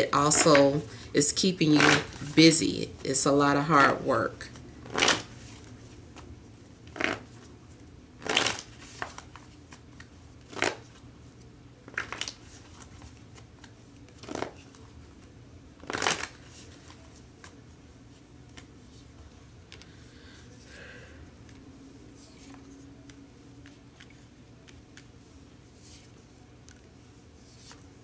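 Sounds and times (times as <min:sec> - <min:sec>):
cards being shuffled: 0:04.5 - 0:07.5, 0:08.2 - 0:11.0, 0:11.8 - 0:17.6, 0:22.2 - 0:28.0.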